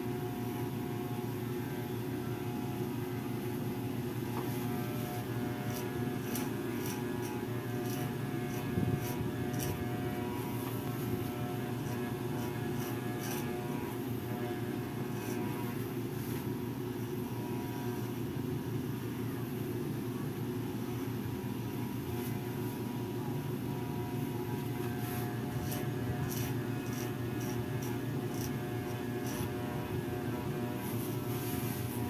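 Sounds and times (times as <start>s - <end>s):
electric hair clippers buzzing: 4.2s - 16.4s, 17.2s - 18.1s, 23.8s - 32.0s.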